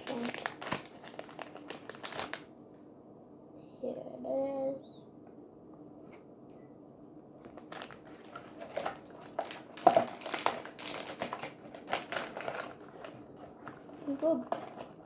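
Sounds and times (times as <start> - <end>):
packaging crinkling and crackling: 0.0 - 2.5, 7.4 - 15.0.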